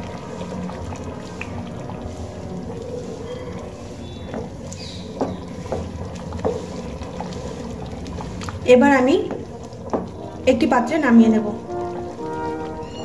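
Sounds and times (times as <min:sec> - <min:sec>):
thick lentils bubbling: 0:00.0 - 0:13.0
wooden spatula scraping pan: 0:03.1 - 0:07.7.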